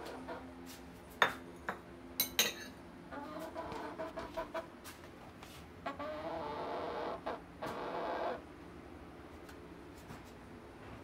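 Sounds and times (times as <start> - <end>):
hen clucking: 0.0 - 0.5, 3.1 - 4.7, 5.8 - 8.4
dishes and utensils clinking: 1.2 - 2.8.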